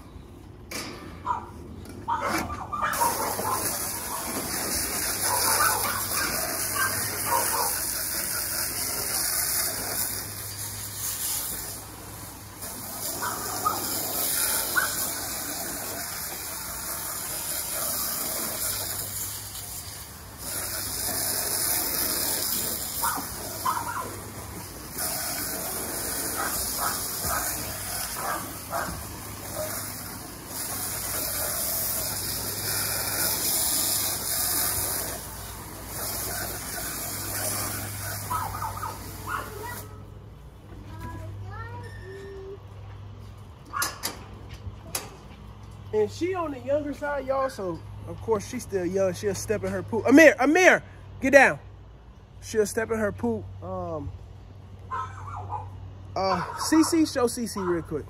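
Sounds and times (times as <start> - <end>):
hose spraying water on wood: 2.6 - 40.3.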